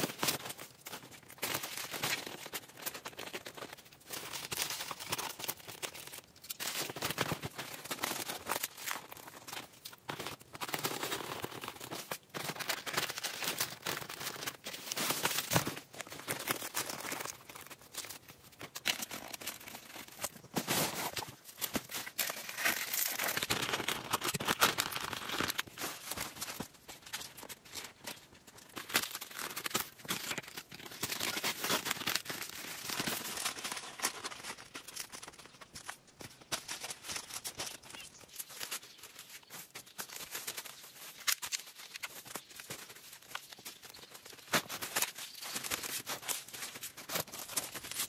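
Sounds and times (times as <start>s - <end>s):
rustling and crackling: 0.0s - 48.0s.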